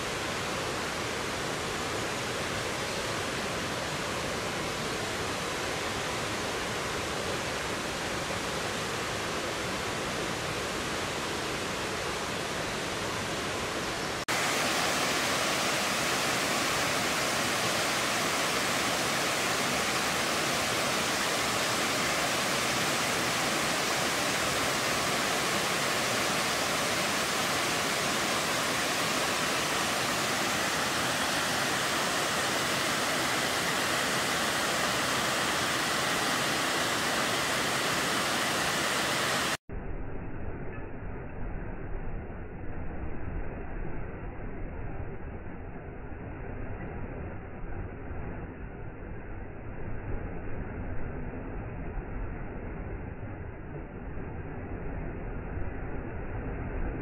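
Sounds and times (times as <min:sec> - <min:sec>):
waterfall rushing: 0:00.0 - 0:39.6.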